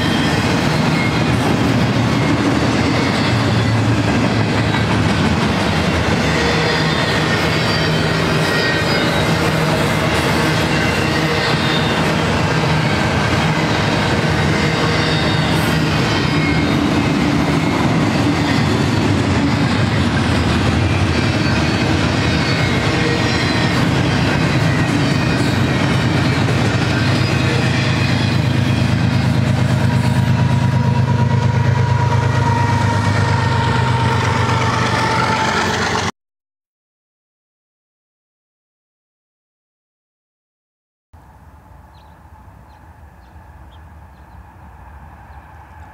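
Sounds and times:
wheels squealing: 0:00.0 - 0:30.5
diesel locomotive engine hum: 0:00.0 - 0:36.1, 0:41.2 - 0:45.9
train wheels rumbling on rails: 0:00.0 - 0:36.1.

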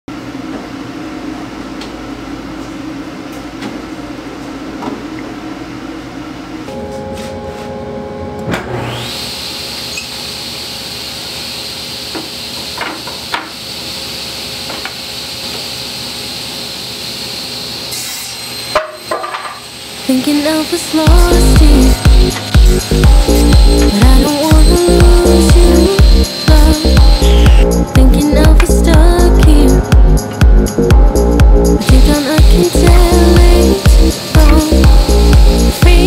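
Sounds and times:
table saw whining: 0:08.4 - 0:28.4, 0:31.8 - 0:36.0.

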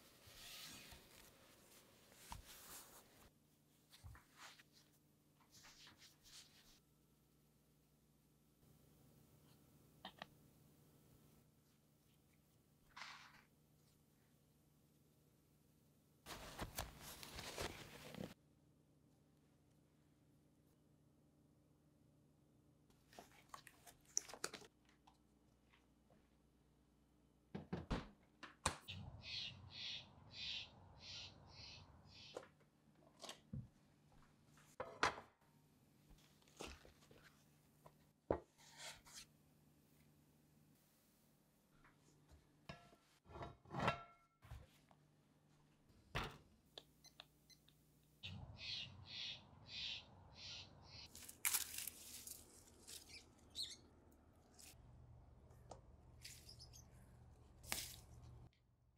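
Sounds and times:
bird's harsh call: 0:28.9 - 0:32.3, 0:48.2 - 0:51.1
rustle of tomato leaves: 0:51.1 - 0:53.2, 0:57.6 - 0:58.1.

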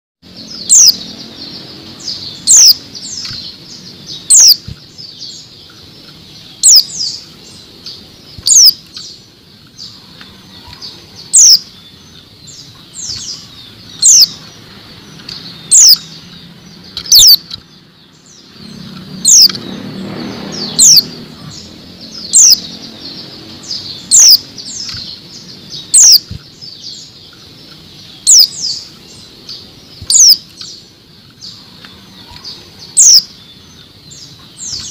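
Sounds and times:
bird high call notes: 0:00.5 - 0:04.7, 0:05.3 - 0:09.2, 0:09.8 - 0:14.5, 0:15.5 - 0:16.4, 0:17.0 - 0:17.5, 0:20.5 - 0:30.8, 0:31.5 - 0:34.9
wing fluttering: 0:02.6 - 0:05.0, 0:23.3 - 0:34.9.

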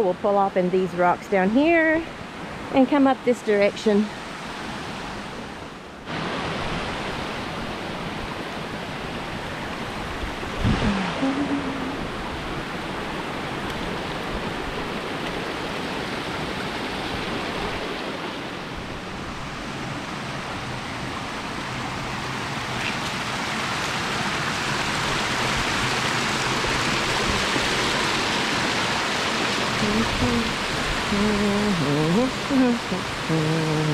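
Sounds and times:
stream splashing over rocks: 0:22.0 - 0:33.9.

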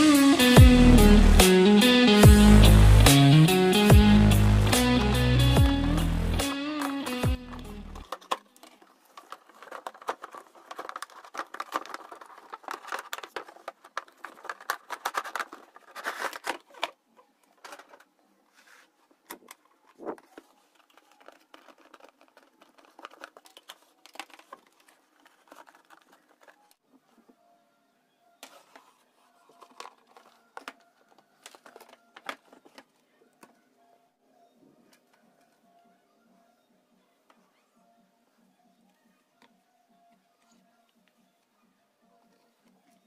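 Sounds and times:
cardboard scraping and rustling: 0:07.5 - 0:17.0, 0:17.6 - 0:26.8, 0:28.4 - 0:32.9.

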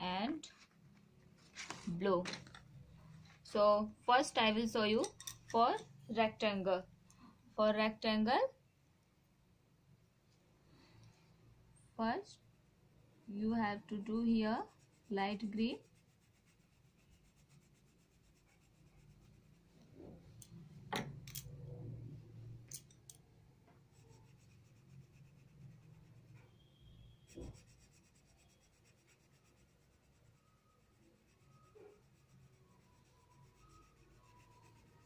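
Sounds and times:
pencil scratching on paper: 0:14.0 - 0:20.2, 0:23.9 - 0:35.0.

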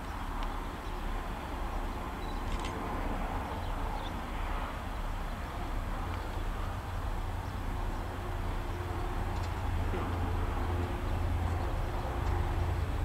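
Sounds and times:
diesel locomotive engine rumbling: 0:00.0 - 0:13.0.

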